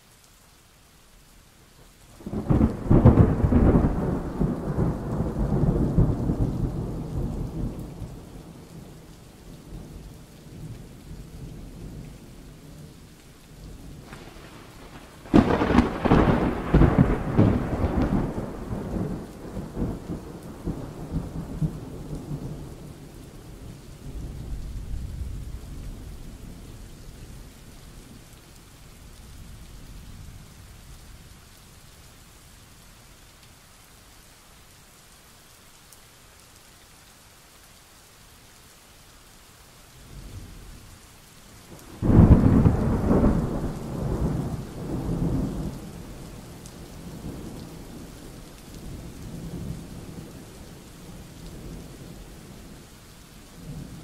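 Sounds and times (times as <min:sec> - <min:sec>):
steady rain: 0:00.0 - 0:54.0
thunder rumbling: 0:02.2 - 0:08.8, 0:14.0 - 0:27.2, 0:41.8 - 0:52.6.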